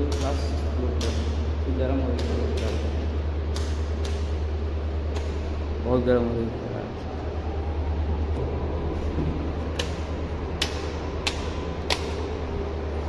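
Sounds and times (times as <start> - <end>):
rocker switches clicking: 0.0 - 5.5, 9.7 - 12.5.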